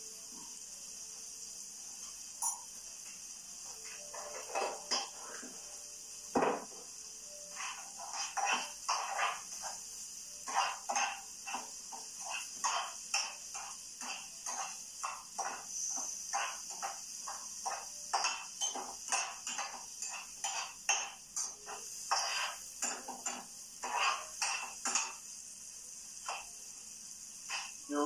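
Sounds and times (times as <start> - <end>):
frying sizzle: 0.0 - 28.0
spoon scraping frying pan: 4.0 - 5.2, 7.3 - 25.2, 26.2 - 26.6, 27.4 - 27.8.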